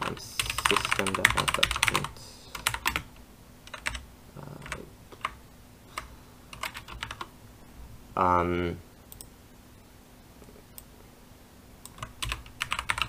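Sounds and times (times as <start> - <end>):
keyboard keys clicking: 0.0 - 3.1, 3.7 - 4.0, 6.0 - 7.3, 11.8 - 13.0.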